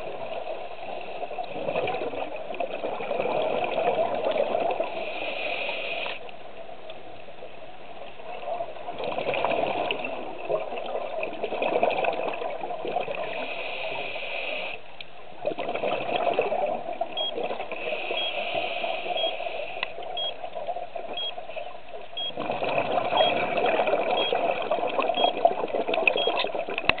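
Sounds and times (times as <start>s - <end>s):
scuba regulator exhaust bubbles: 0.0s - 5.2s, 8.3s - 13.7s, 15.4s - 21.5s, 22.1s - 27.0s
faint high beep: 18.2s - 18.4s, 19.2s - 19.4s, 20.2s - 20.4s, 21.2s - 21.4s, 23.2s - 23.4s, 24.2s - 24.4s, 25.2s - 25.4s.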